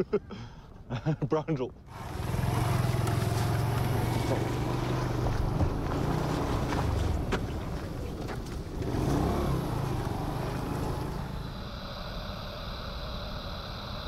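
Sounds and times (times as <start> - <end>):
motorcycle engine running: 1.9 - 11.6.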